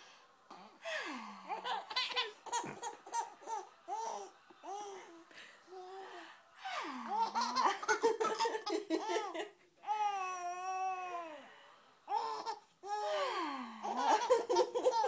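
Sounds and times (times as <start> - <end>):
baby giggling: 1.5 - 3.7, 7.1 - 9.5, 13.8 - 15.0.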